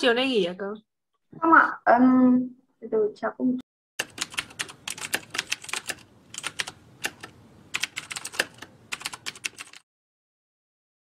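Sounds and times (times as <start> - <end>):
keyboard key clicks: 4.0 - 9.8.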